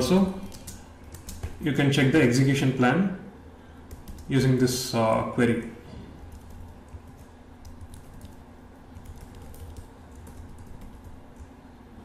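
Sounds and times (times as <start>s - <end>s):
low steady hum: 0.0s - 12.0s
keyboard typing: 0.4s - 1.6s, 3.9s - 4.3s, 6.3s - 11.5s.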